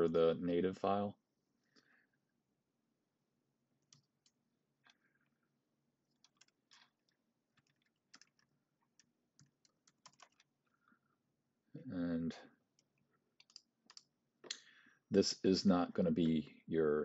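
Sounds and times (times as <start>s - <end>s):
faint keyboard keystrokes: 6.1s - 10.5s, 12.8s - 14.1s.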